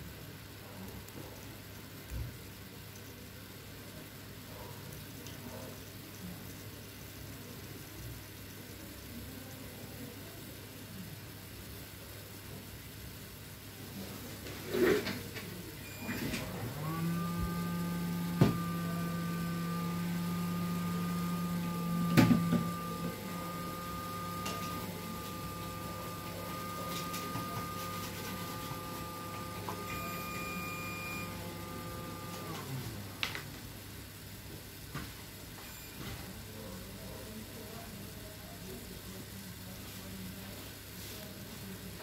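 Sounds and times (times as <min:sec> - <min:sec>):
small electric motor humming: 0:16.0 - 0:33.8.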